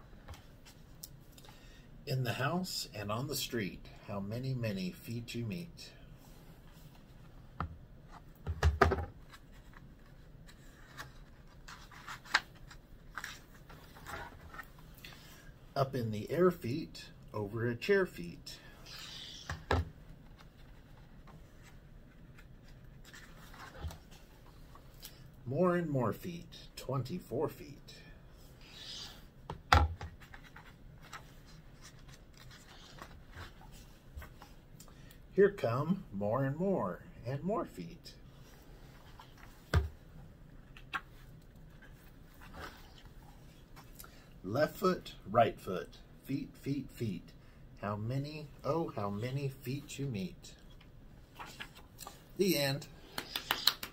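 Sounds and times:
paper pages rustling: 9.2s - 14.8s, 30.2s - 34.6s, 51.3s - 52.2s.

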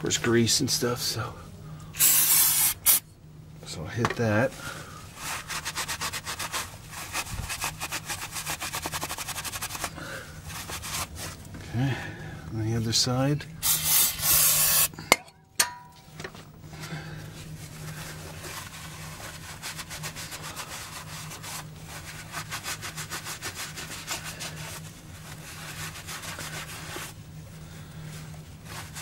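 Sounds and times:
aerosol spray hissing: 2.0s - 3.0s, 13.6s - 14.9s
quick rubbing strokes: 5.1s - 11.4s, 13.6s - 14.9s, 17.6s - 27.2s.

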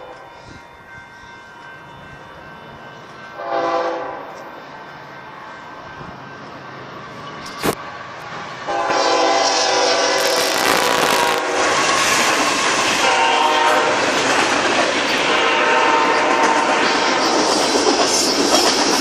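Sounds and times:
train rumble and clatter: 0.0s - 19.0s
locomotive horn blasts: 3.4s - 4.4s, 8.7s - 12.2s, 13.0s - 14.0s, 15.2s - 16.8s.

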